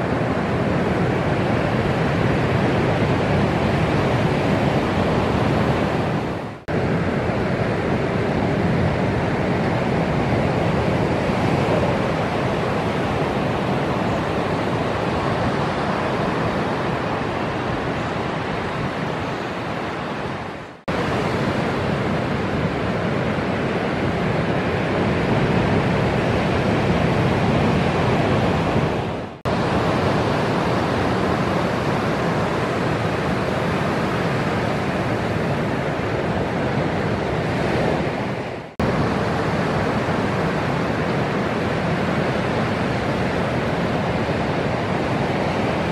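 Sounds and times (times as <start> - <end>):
waves breaking: 0.0 - 45.9.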